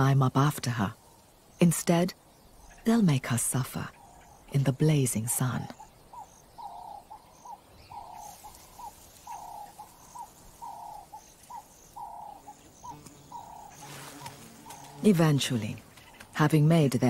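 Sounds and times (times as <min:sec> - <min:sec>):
faint high bird chirps: 0:03.9 - 0:15.4
dove cooing: 0:05.7 - 0:16.2.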